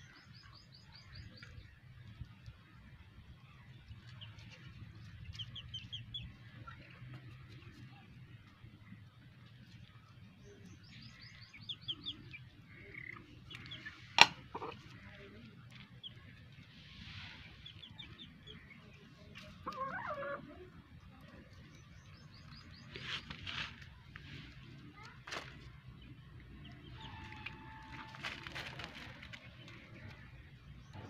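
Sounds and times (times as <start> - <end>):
chicks chirping: 4.1 - 6.8, 11.1 - 15.2, 17.4 - 18.8.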